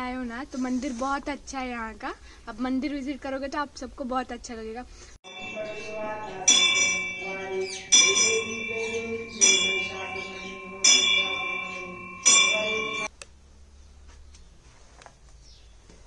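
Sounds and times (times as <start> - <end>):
temple bell ringing: 5.3 - 13.1.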